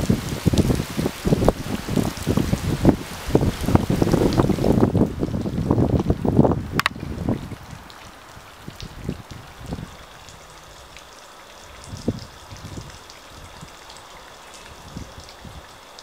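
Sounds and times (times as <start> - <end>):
wind thumps on microphone: 0.0 - 7.8, 11.8 - 13.7
small water drips: 0.0 - 16.0
water trickling: 0.0 - 16.0.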